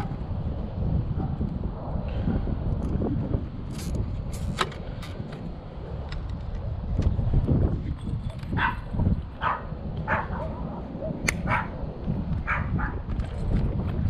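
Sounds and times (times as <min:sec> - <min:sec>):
wind rumble on microphone: 0:00.0 - 0:14.0
dog barking: 0:08.6 - 0:11.8, 0:12.4 - 0:13.0.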